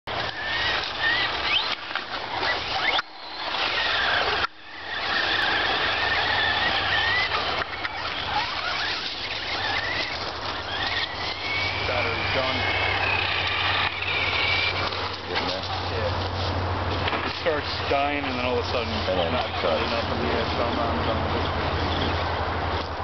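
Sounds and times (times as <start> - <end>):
toy truck motor whining: 0.1 - 15.6
tyres scrabbling in gravel: 0.1 - 23.0.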